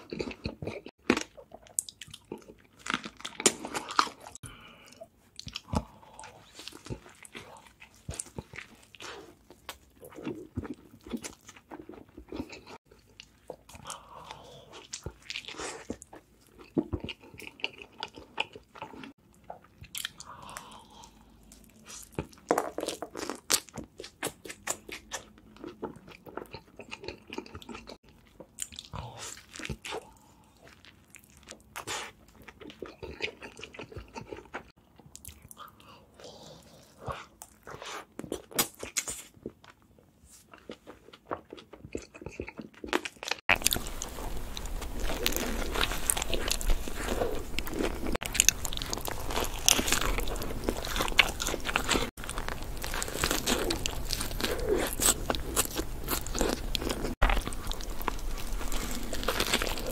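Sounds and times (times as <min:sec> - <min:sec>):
crunchy bites and chewing: 0:00.0 - 0:04.5, 0:40.5 - 0:59.9
chewing with wet mouth clicks: 0:40.6 - 0:59.9.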